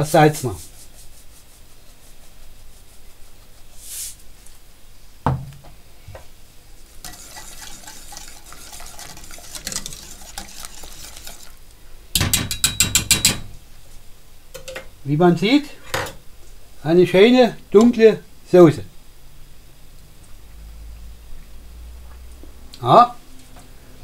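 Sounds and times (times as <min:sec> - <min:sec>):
knock: 0:05.2 - 0:05.5
whisk rapping against a pot: 0:07.0 - 0:11.6, 0:12.2 - 0:13.5
whisk scraping a metal pot: 0:07.0 - 0:11.6.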